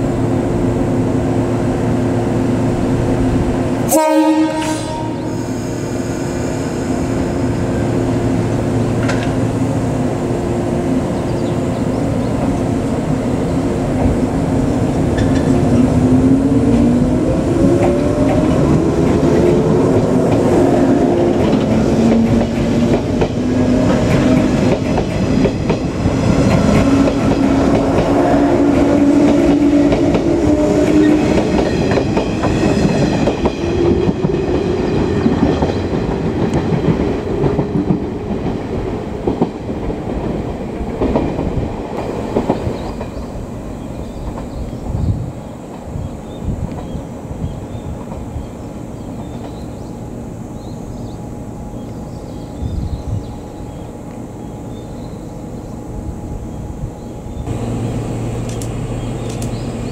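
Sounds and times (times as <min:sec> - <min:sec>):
train wheels clattering over rail joints: 0:09.0 - 0:09.4, 0:21.2 - 0:43.3.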